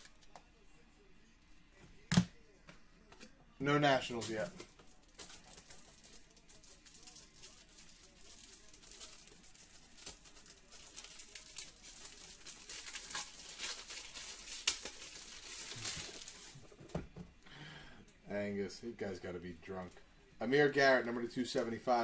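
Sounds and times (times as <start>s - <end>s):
card wrappers rustling and crinkling: 3.6s - 17.0s.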